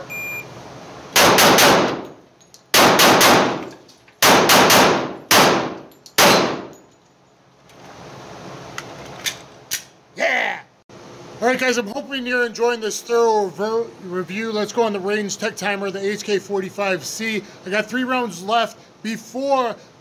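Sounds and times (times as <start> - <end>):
pistol shots in reverberant room: 1.2 - 2.1, 2.7 - 6.7.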